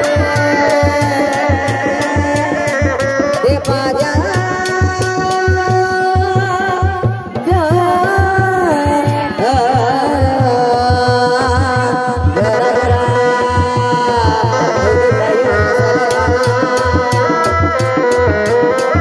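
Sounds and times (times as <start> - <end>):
wavering held melody: 0.0 - 6.6
drums beating fast rhythm: 0.0 - 19.0.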